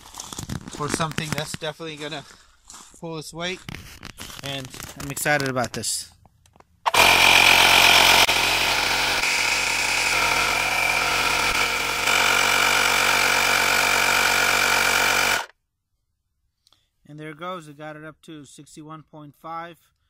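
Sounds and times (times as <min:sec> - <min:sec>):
portable tire inflator running: 0:06.9 - 0:15.5.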